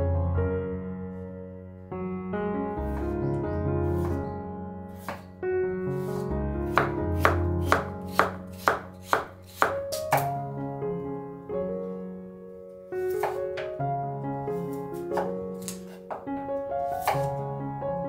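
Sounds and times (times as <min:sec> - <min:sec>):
knife chopping on wooden board: 0:04.0 - 0:04.2, 0:05.0 - 0:05.3, 0:06.0 - 0:10.3, 0:13.1 - 0:13.4, 0:15.2 - 0:16.2, 0:16.9 - 0:17.4.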